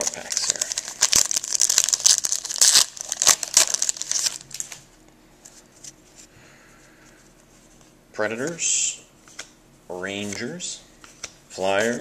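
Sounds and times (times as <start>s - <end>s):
foil wrapper tearing and crinkling: 0.0s - 4.8s.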